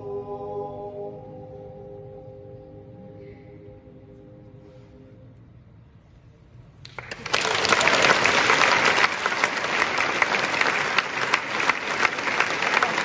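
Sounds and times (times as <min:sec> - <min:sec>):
audience applause: 0:06.9 - 0:13.0.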